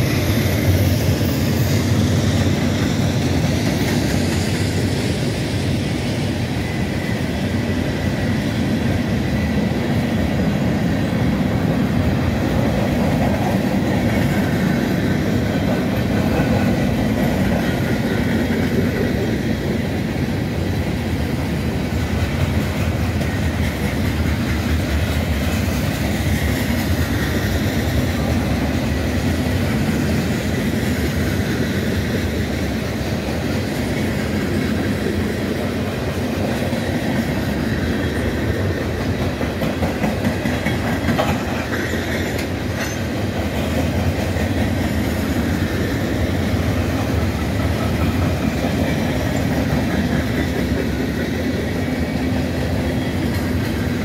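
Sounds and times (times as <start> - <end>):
freight train rolling past: 0.0 - 54.0
steel wheels on rails: 0.0 - 54.0.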